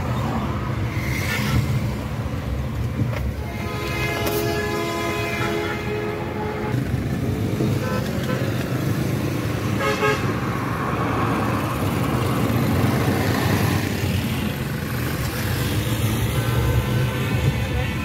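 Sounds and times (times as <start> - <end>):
traffic engine and tyre rumble: 0.0 - 18.0
vehicle horn tooting: 3.4 - 6.8.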